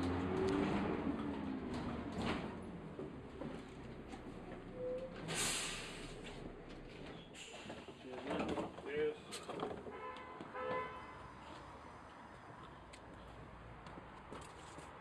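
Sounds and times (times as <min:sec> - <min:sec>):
bus engine drone: 0:00.0 - 0:09.8.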